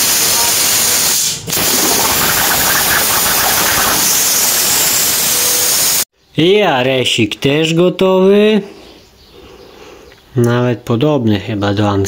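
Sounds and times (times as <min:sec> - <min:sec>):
plasma cutter torch hissing: 0:00.0 - 0:06.1.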